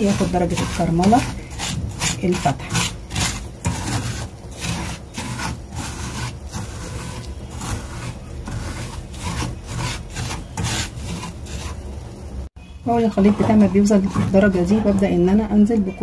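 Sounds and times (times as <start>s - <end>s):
wooden spoon scraping sugar in pan: 0.0s - 12.1s, 12.9s - 15.8s.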